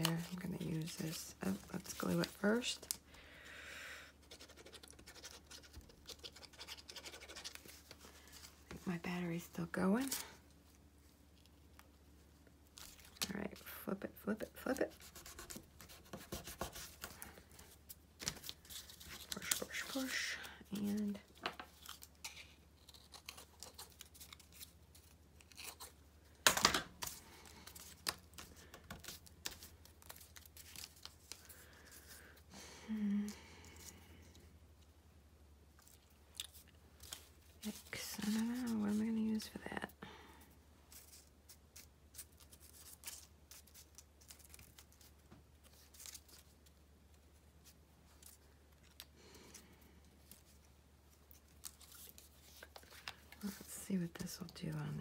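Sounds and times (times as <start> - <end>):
paper rustle: 0.0 - 3.0, 14.8 - 26.0, 26.6 - 32.2, 35.8 - 39.6, 40.9 - 49.6, 50.2 - 55.0
low steady hum: 0.0 - 55.0.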